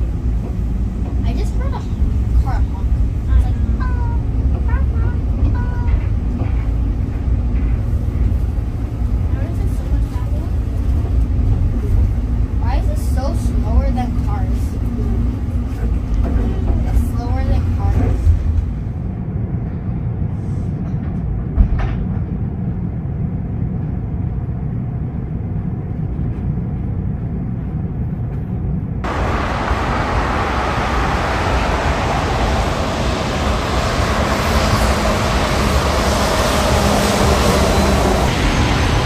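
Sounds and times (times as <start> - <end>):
bus driving past on wet road: 29.1 - 39.0.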